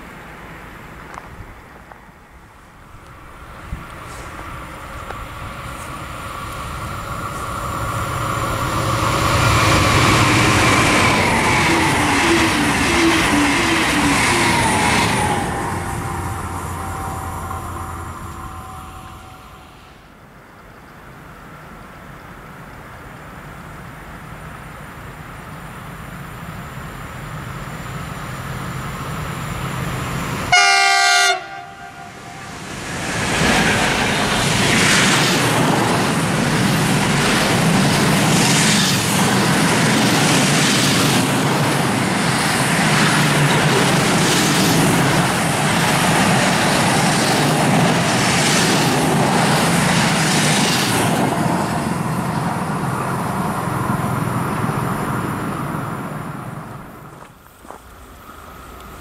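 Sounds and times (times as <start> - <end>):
freight train rumbling past: 0.0 - 59.0
train horn blast: 15.5 - 20.1, 30.5 - 32.7.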